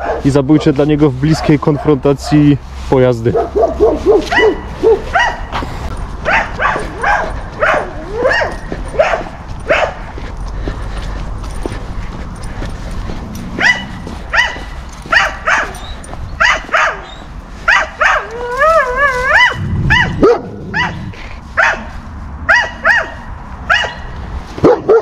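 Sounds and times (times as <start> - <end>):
dog barking: 0.0 - 0.3, 1.2 - 2.5, 3.3 - 5.6, 6.2 - 10.1, 13.4 - 25.0
dog whining: 7.7 - 8.7, 18.0 - 21.1.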